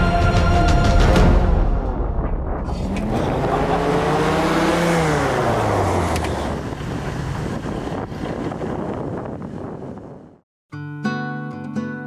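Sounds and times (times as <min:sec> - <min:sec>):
engine passing by: 0:02.7 - 0:09.5.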